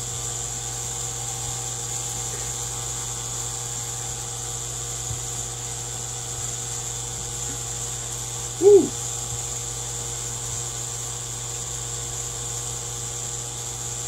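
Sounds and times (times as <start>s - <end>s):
high steady hiss: 0.0s - 10.8s.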